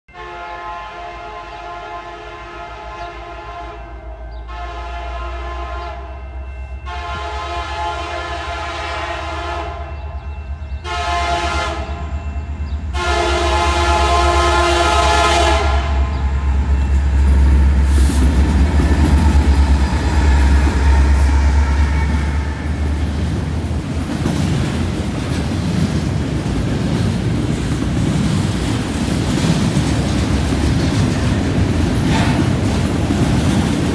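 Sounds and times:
locomotive air horn blasts: 0.1 - 23.2
train wheels clickety-clack: 16.5 - 33.9.

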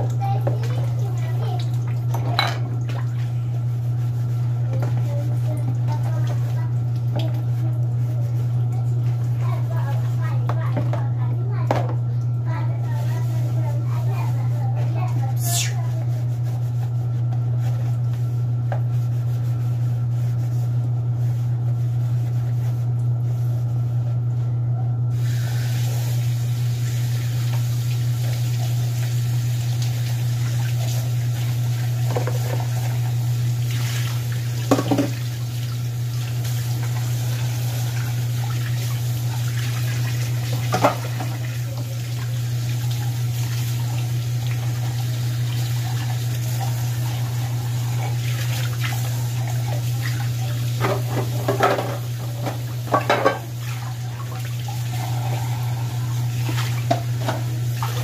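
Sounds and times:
kitchen tap running into sink: 0.0 - 16.9, 25.1 - 58.0
dishes being washed by hand: 0.0 - 24.4, 25.1 - 58.0
steady low hum: 29.0 - 58.0
dishware knocking: 53.0 - 53.5.

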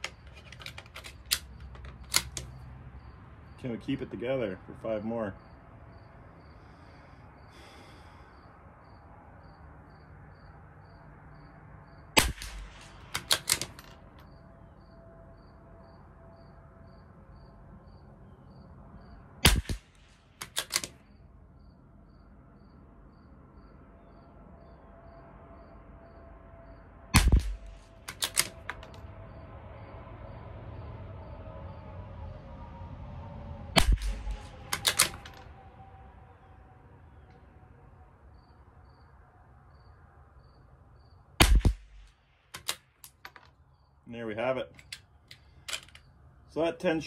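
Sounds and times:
rifle bolt clicking: 0.0 - 2.5, 12.2 - 14.0, 20.4 - 21.0, 27.2 - 29.0, 33.8 - 35.4, 42.6 - 43.5, 44.8 - 46.0
rifle shots: 12.2 - 13.9, 19.4 - 21.0, 27.2 - 29.0, 33.8 - 35.4, 41.4 - 42.9.

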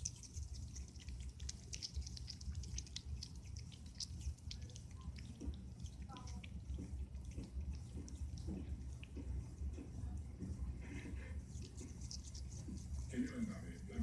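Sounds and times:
animal chewing wetly: 0.0 - 14.0.

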